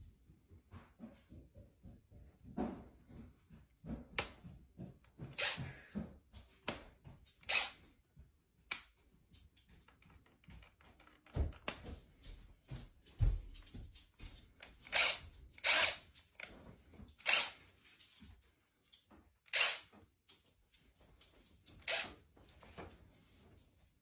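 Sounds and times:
cordless drill revving: 5.3 - 5.6, 7.4 - 7.8, 14.8 - 16.5, 17.2 - 17.6, 19.5 - 19.9, 21.8 - 22.1.

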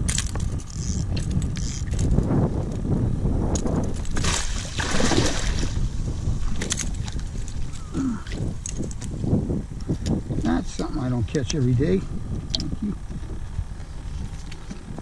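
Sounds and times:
fish thrashing and splashing: 4.0 - 7.8.

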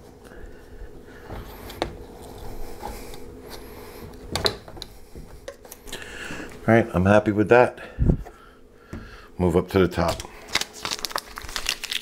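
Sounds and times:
foil tape rustling: 9.9 - 12.0.

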